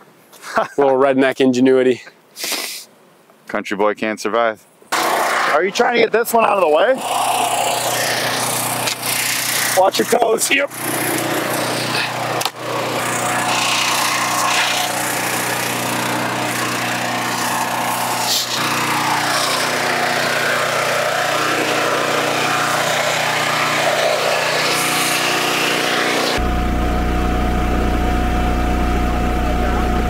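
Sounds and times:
wood splitting: 4.9s - 6.0s, 7.0s - 26.5s
log splitter engine droning: 4.9s - 30.0s.

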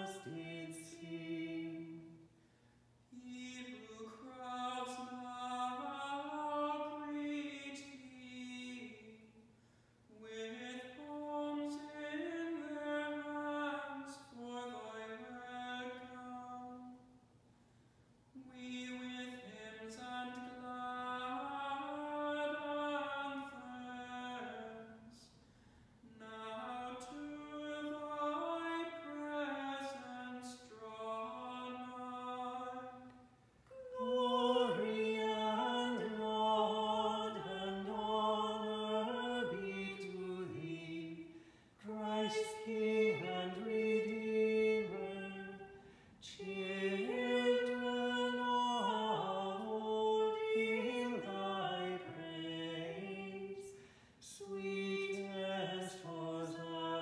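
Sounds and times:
liturgical chant singing: 0.0s - 2.2s, 26.1s - 57.0s.

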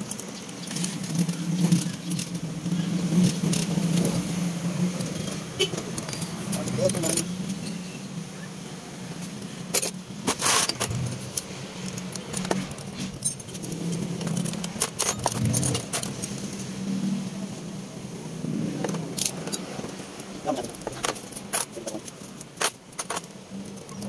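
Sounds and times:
small metal parts clinking: 9.7s - 16.7s, 20.7s - 24.0s.

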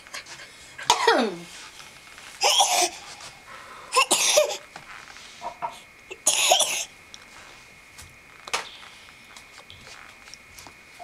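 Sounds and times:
person coughing: 0.9s - 1.4s, 2.4s - 3.0s, 3.9s - 4.6s, 6.2s - 6.9s.

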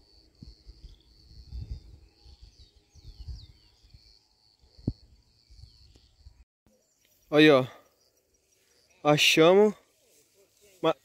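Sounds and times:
bird chirps: 0.4s - 10.2s
rustling through brush: 8.4s - 11.0s.

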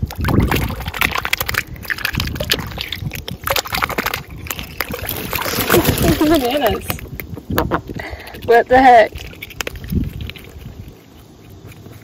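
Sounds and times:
water splashing in a pool: 0.0s - 7.4s, 8.0s - 10.8s.

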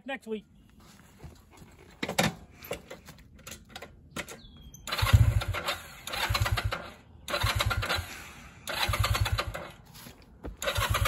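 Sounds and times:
motorcycle engine sputtering: 4.2s - 9.8s, 10.5s - 11.0s.

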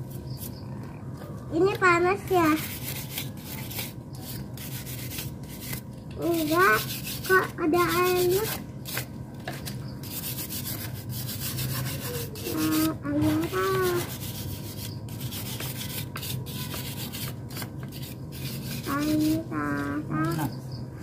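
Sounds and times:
rubbing strokes on engine part: 2.6s - 9.0s, 10.0s - 19.5s.

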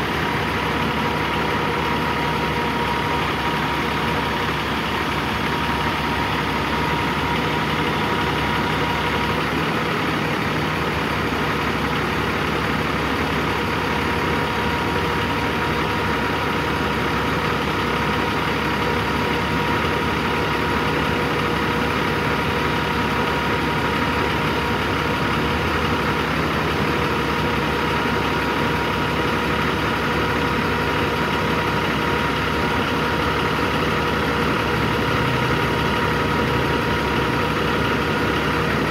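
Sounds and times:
steady high whine: 0.0s - 13.5s
diesel engine idling: 0.0s - 38.9s.

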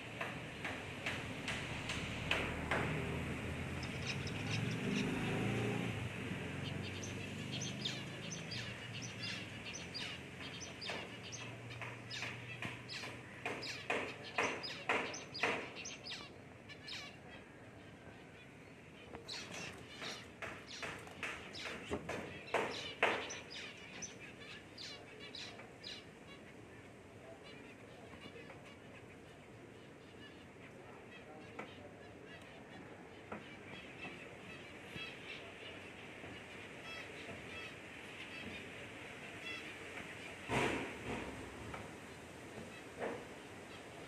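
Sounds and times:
finch chirps: 3.8s - 5.4s, 6.6s - 17.4s, 19.0s - 26.5s.

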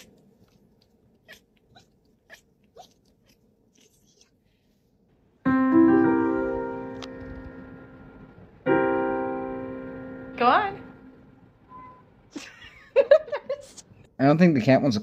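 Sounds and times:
electric keyboard chord ringing: 5.5s - 12.0s.

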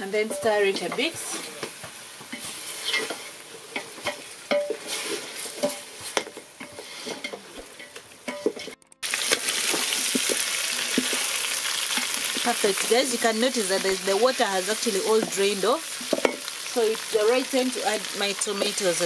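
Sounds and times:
wooden spoon scraping metal pot: 0.0s - 11.3s
chicken sizzling: 0.0s - 19.0s.

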